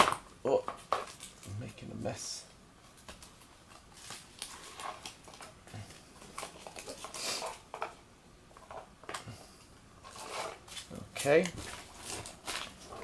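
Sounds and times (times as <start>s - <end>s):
plastic sleeves rustling and crinkling: 2.8s - 8.0s, 10.0s - 13.0s
sliding plastic hiss: 7.0s - 7.7s.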